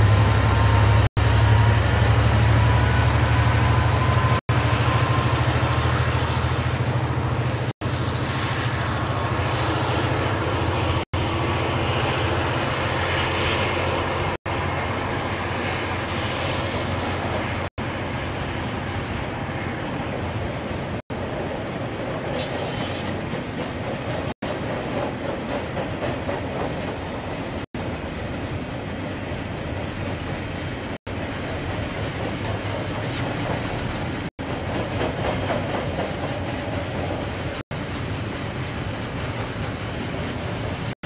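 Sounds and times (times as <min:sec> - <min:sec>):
train wagons rumbling on rails: 0:00.0 - 0:41.0
train wheel squeal: 0:00.1 - 0:06.6, 0:11.3 - 0:20.2, 0:22.2 - 0:26.5, 0:30.0 - 0:40.9.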